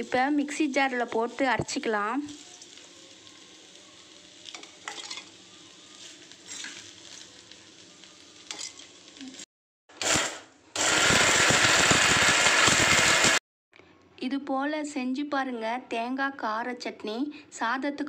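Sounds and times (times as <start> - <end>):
mixer grinder running: 10.0 - 13.4.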